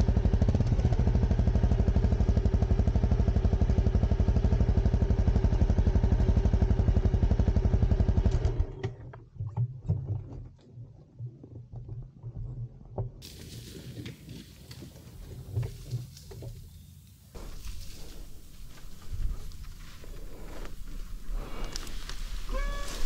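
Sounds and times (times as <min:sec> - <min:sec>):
motorcycle engine idling: 0:00.0 - 0:08.8.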